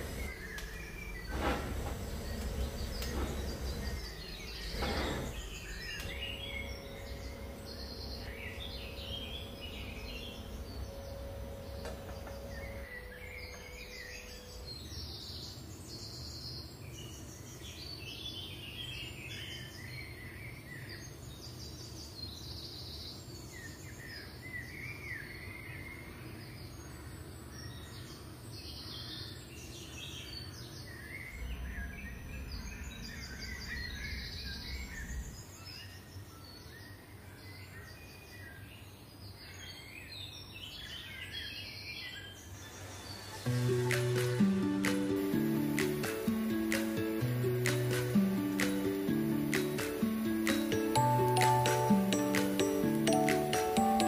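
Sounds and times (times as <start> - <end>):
steady low hum: 0.0 - 15.7, 31.2 - 35.7, 43.4 - 54.0
small birds chirping: 0.0 - 54.0.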